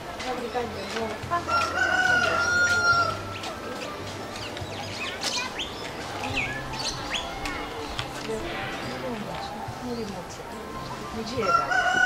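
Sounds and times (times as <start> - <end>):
small birds chirping: 0.2 - 12.0
rooster crowing: 11.4 - 12.0.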